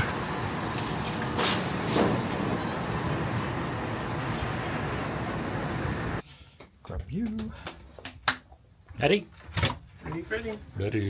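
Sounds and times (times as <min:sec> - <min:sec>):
hum of traffic and machinery: 0:00.0 - 0:06.7.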